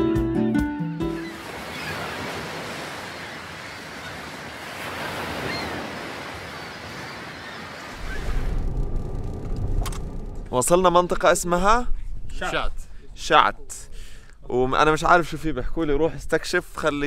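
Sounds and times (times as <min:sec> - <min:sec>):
waves breaking on beach: 0:01.2 - 0:08.6.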